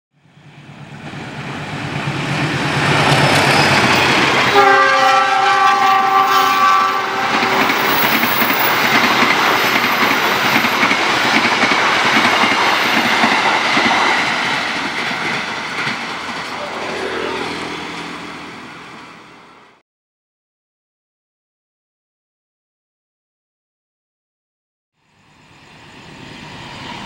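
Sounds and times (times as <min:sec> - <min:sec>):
train carriages clattering past: 0:00.3 - 0:19.8
locomotive rumble: 0:00.4 - 0:19.8
train horn: 0:04.4 - 0:08.7, 0:16.6 - 0:18.1.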